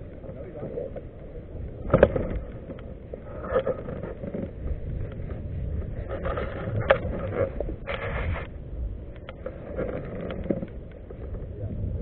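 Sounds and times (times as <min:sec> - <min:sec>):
low rumbling noise: 0:00.0 - 0:12.0
knocks and scrapes on plastic kayak: 0:01.8 - 0:08.5, 0:09.2 - 0:11.7.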